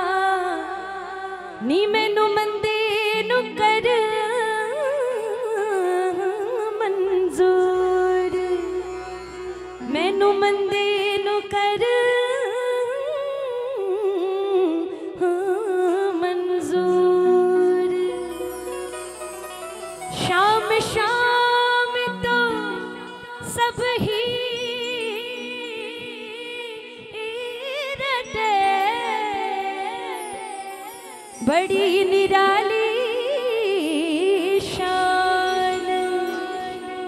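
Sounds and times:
woman singing wordless melody: 0:00.0 - 0:37.0
instruments holding steady notes: 0:07.4 - 0:11.5, 0:17.4 - 0:32.3.

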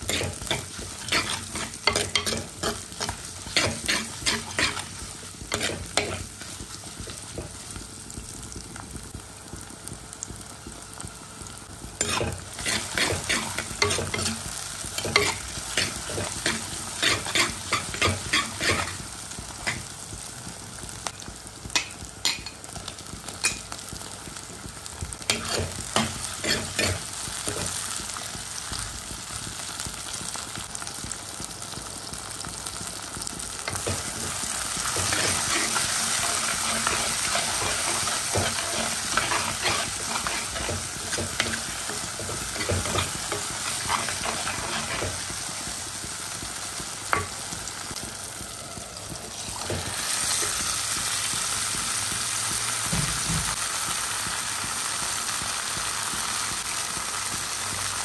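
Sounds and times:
vegetables sizzling in oil: 0:00.0 - 0:58.0
ladle clinking and scraping pot: 0:00.1 - 0:04.9, 0:12.0 - 0:19.0, 0:34.9 - 0:45.1.

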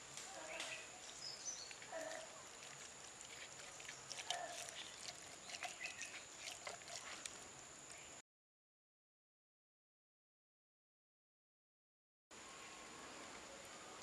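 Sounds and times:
hand squishing spice paste on fish: 0:01.7 - 0:07.3.

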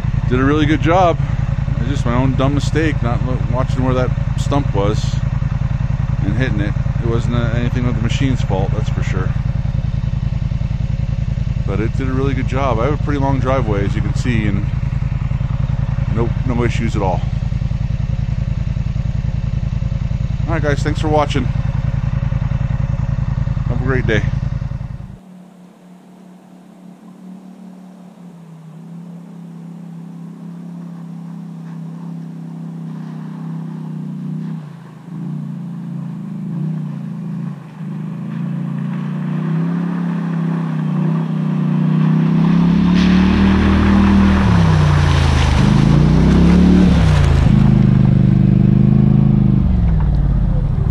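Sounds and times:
off-road vehicle engine: 0:00.0 - 0:50.9
water splashing and churning: 0:25.2 - 0:50.9.

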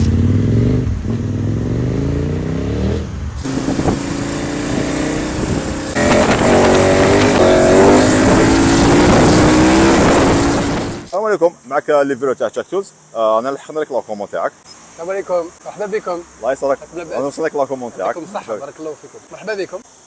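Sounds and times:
motorcycle engine accelerating: 0:00.0 - 0:11.1.

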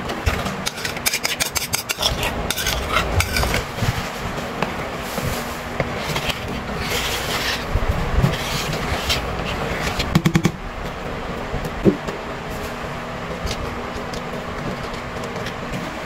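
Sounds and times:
whisk beating batter in a bowl: 0:00.2 - 0:10.1.

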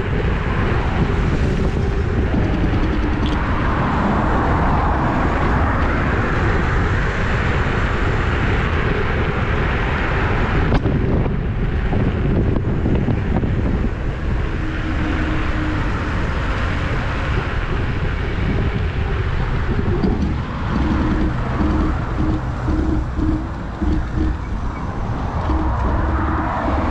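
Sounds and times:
road noise: 0:00.0 - 0:26.9
wind buffeting microphone: 0:00.0 - 0:26.9
low hum: 0:11.6 - 0:26.9.

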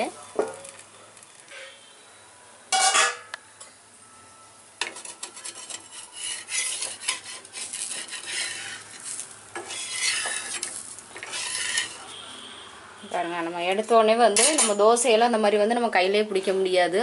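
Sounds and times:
metal spatula scraping griddle: 0:02.7 - 0:03.3, 0:04.8 - 0:12.2, 0:14.3 - 0:14.8.

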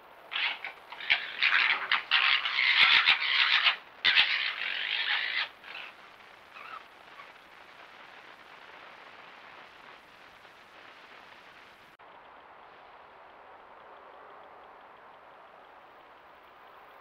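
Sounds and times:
microphone hiss: 0:00.0 - 0:17.0
faint fox call: 0:00.2 - 0:07.5
foxes gekkering: 0:00.3 - 0:07.4.

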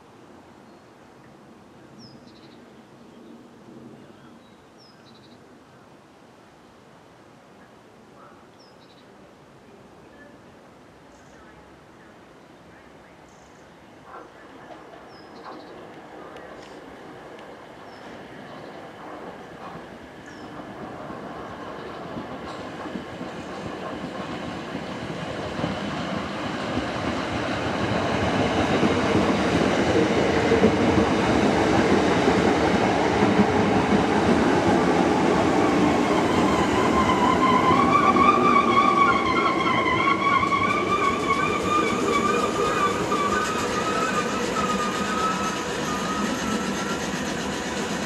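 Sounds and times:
electric train rumble: 0:14.8 - 0:48.0
high wavering squeal: 0:36.3 - 0:48.0.

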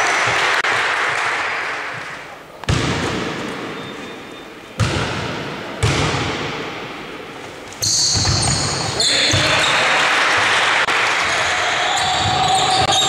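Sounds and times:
basketball bouncing on wooden floor: 0:04.8 - 0:06.6, 0:08.1 - 0:09.5.

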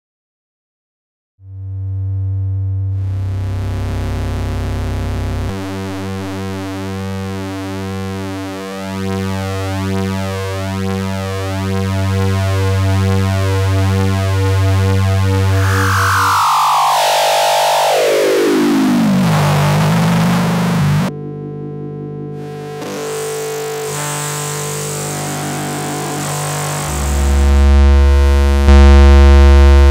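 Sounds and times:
buzzy synth drone: 0:01.4 - 0:29.9.

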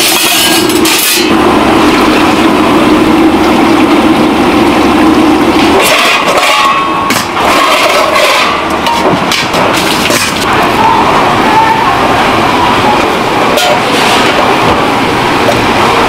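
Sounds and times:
busy market din: 0:00.0 - 0:16.0
faint voices: 0:10.4 - 0:15.2.

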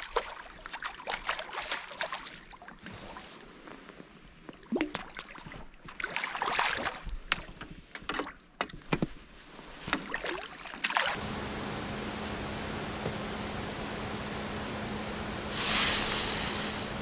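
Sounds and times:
water splashing and sloshing: 0:00.0 - 0:03.6, 0:04.4 - 0:17.0
steady hiss: 0:11.2 - 0:17.0.

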